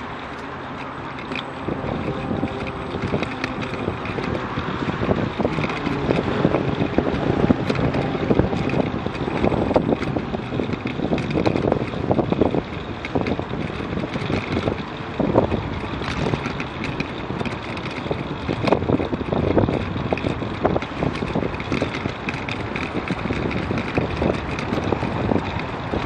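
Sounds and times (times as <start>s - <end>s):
bicycle knocks and rattles: 0.0s - 26.0s
wind buffeting microphone: 0.0s - 26.0s.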